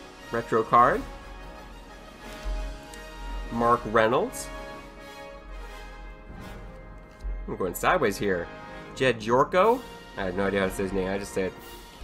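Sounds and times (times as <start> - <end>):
quiet background music: 0.0 - 12.0
low bump: 5.5 - 8.4.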